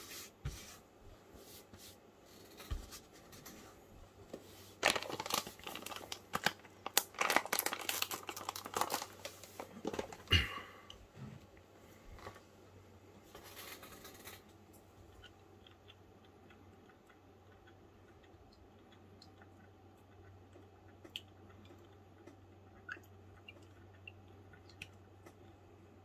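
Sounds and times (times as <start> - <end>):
steady low hum: 9.4 - 26.0.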